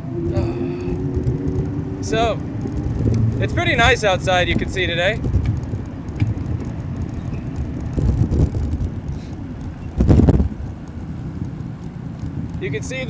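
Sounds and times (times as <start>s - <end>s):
city street traffic: 0.0s - 13.0s
wind rumbling on microphone: 0.0s - 13.0s.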